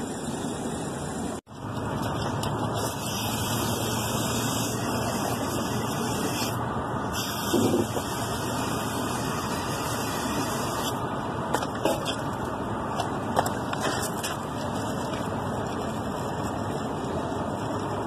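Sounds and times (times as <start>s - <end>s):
water pouring and splashing: 1.5s - 5.8s, 11.6s - 18.0s.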